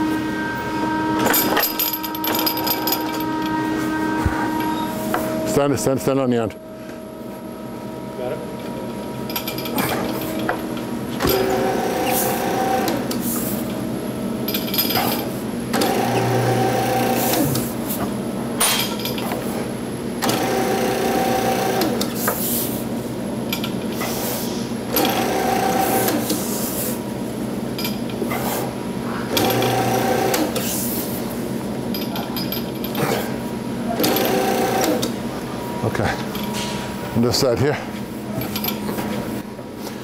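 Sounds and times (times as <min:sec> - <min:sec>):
tube-rolling machine motor humming: 0:00.0 - 0:18.6.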